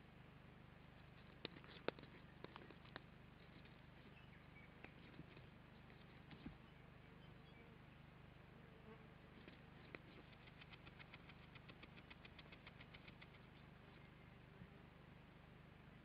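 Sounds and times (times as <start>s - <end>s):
low electrical hum: 0.0s - 16.0s
bird beak clicking rapidly: 1.0s - 3.8s, 9.4s - 13.6s.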